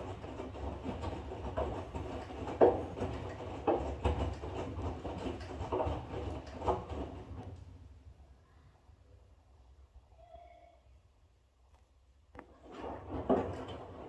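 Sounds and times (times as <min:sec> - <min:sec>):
laundry sloshing and thudding: 0:00.0 - 0:07.6, 0:12.4 - 0:14.0.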